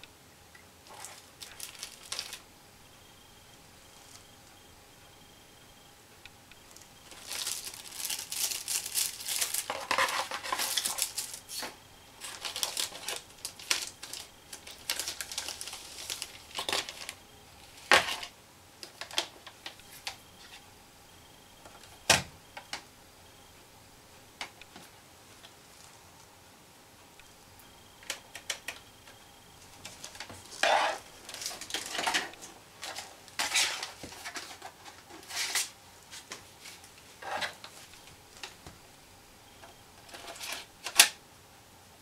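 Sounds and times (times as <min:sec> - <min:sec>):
plastic packaging crinkling: 0:00.8 - 0:02.4, 0:06.7 - 0:20.2, 0:29.6 - 0:38.6.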